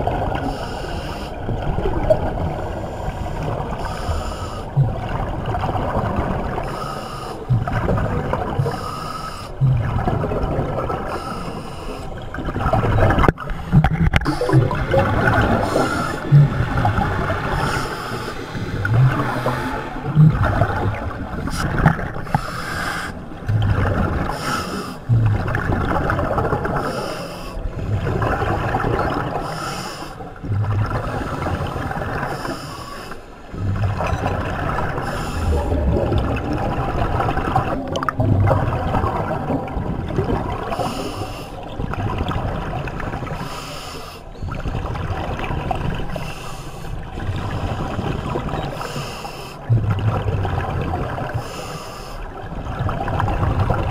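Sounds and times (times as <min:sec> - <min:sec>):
diver breathing through regulator: 0:00.4 - 0:01.4, 0:02.5 - 0:04.9, 0:06.6 - 0:07.9, 0:08.6 - 0:09.9, 0:11.0 - 0:12.2, 0:13.5 - 0:20.8, 0:21.4 - 0:25.5, 0:26.7 - 0:28.0, 0:29.3 - 0:30.2, 0:31.1 - 0:34.0, 0:34.9 - 0:36.2, 0:40.7 - 0:41.6, 0:43.3 - 0:44.3, 0:48.7 - 0:49.8, 0:51.4 - 0:52.3
exhaled bubbles rushing: 0:01.4 - 0:06.8, 0:07.4 - 0:08.8, 0:09.6 - 0:11.2, 0:12.2 - 0:27.0, 0:27.6 - 0:29.5, 0:30.3 - 0:32.3, 0:33.5 - 0:41.0, 0:41.6 - 0:43.4, 0:44.4 - 0:46.3, 0:47.0 - 0:48.9, 0:49.6 - 0:51.4, 0:52.3 - 0:53.9.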